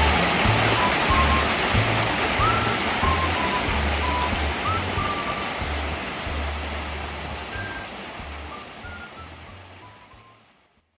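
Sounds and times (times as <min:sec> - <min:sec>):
soft background music: 0:00.0 - 0:10.6
water rushing over rocks: 0:00.0 - 0:10.8.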